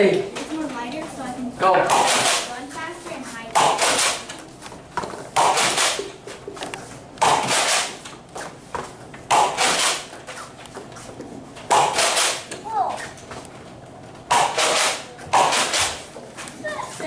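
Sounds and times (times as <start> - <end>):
toy blaster shots: 1.9 - 2.5, 3.6 - 4.2, 5.4 - 6.0, 7.2 - 8.0, 9.3 - 10.1, 11.7 - 12.5, 14.3 - 16.0.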